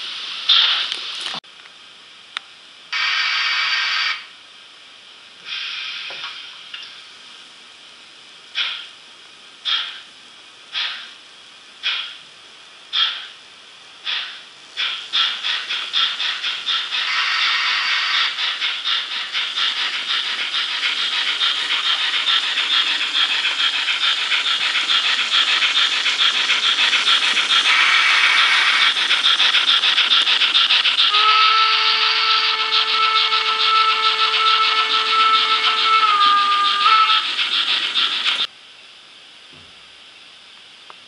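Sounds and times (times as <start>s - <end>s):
steam exhaust chuffs: 14.0s - 38.5s
steam whistle: 31.0s - 37.5s.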